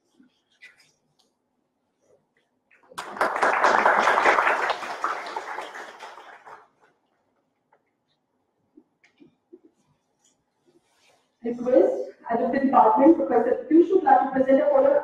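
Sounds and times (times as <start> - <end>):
people applauding: 2.8 - 6.8.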